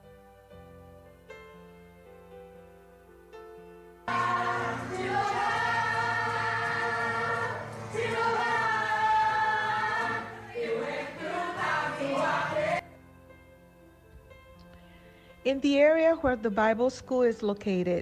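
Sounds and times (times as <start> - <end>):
congregation singing: 4.1 - 12.8.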